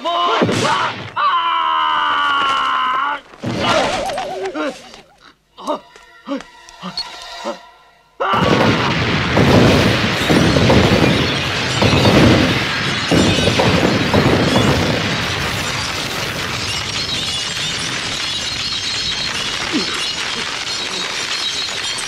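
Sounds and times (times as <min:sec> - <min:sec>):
explosion booms: 0:08.4 - 0:22.0
glass shattering: 0:08.4 - 0:22.0.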